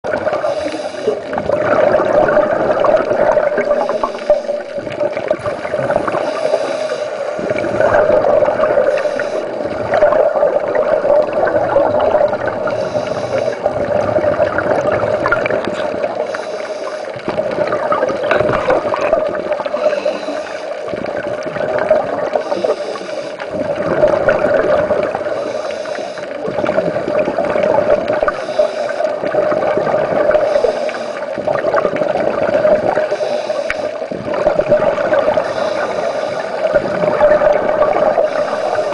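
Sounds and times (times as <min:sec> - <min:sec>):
bubbles gurgling underwater: 0:00.0 - 0:16.5, 0:17.1 - 0:38.9
divers breathing through regulators: 0:00.3 - 0:01.4, 0:03.3 - 0:05.4, 0:06.0 - 0:08.0, 0:08.8 - 0:09.8, 0:12.6 - 0:13.9, 0:15.4 - 0:21.0, 0:22.4 - 0:23.6, 0:25.2 - 0:26.6, 0:28.2 - 0:29.3, 0:30.3 - 0:31.5, 0:32.9 - 0:34.2, 0:35.2 - 0:37.0, 0:37.8 - 0:38.9.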